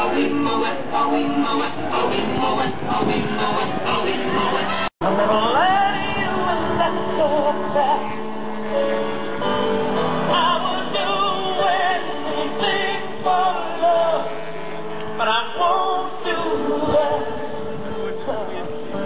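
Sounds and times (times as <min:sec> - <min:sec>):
person singing: 0:00.0 - 0:08.2, 0:10.2 - 0:14.4, 0:15.2 - 0:17.6
musical accompaniment: 0:00.0 - 0:19.0.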